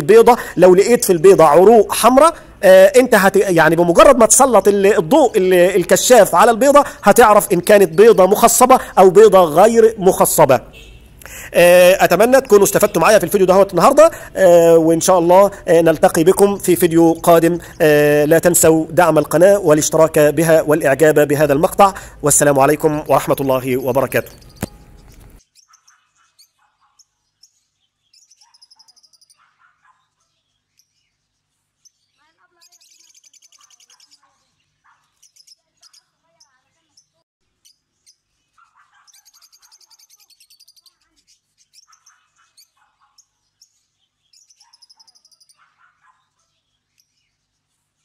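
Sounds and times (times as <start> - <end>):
lovebirds chirping: 0.0 - 48.0
bird squawks: 24.1 - 27.1, 38.5 - 43.3.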